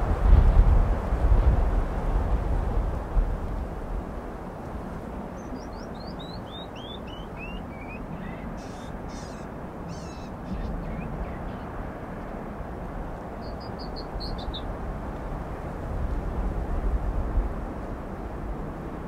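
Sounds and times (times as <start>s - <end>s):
wind through pine trees: 0.0s - 19.0s
harsh bird calls: 5.4s - 11.8s, 13.3s - 14.7s
wren singing: 5.4s - 11.8s, 13.4s - 14.7s.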